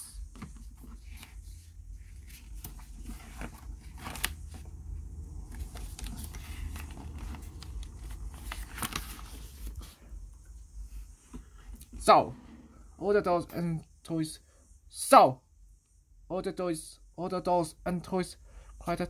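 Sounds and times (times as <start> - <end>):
book pages rustling: 0.2 - 10.2
page flaps: 2.2 - 4.7, 5.4 - 10.0.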